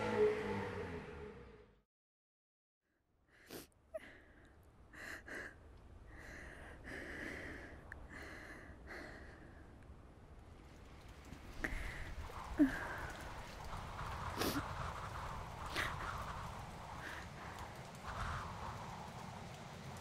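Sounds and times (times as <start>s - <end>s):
car engine: 0.0s - 1.8s.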